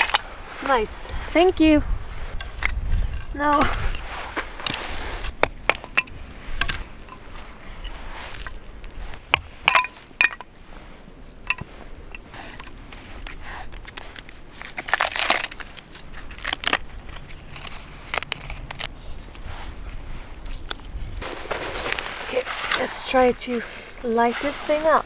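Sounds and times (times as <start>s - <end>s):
crunching crinkling handling noise: 0.0s - 23.2s
kindling sticks clacking: 2.4s - 10.6s, 11.4s - 18.9s.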